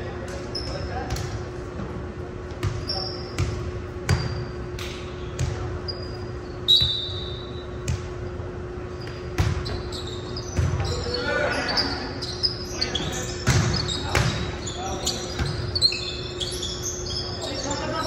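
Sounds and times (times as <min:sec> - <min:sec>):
sneakers squeaking: 0:00.0 - 0:18.0
steady low hum: 0:00.0 - 0:18.0.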